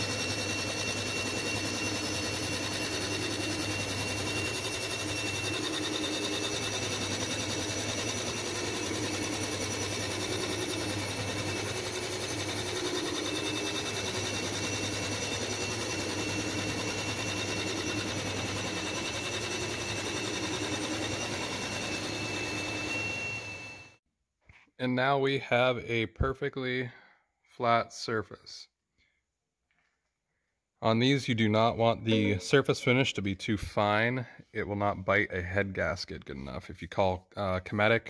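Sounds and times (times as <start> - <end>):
milling machine humming: 0.0 - 23.9
cutter high whine: 0.0 - 24.0.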